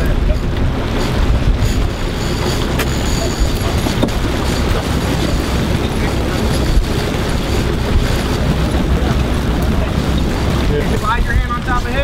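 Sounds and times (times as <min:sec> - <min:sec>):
boat engine running: 0:00.0 - 0:12.0
water rushing along hull: 0:00.0 - 0:12.0
wind buffeting microphone: 0:00.0 - 0:12.0.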